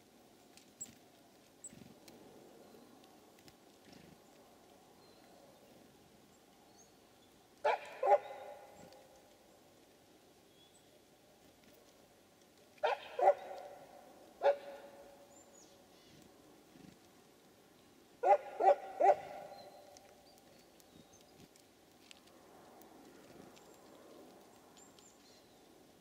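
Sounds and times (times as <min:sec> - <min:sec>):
dog barking: 0:07.6 - 0:08.7, 0:12.8 - 0:15.0, 0:18.2 - 0:19.6.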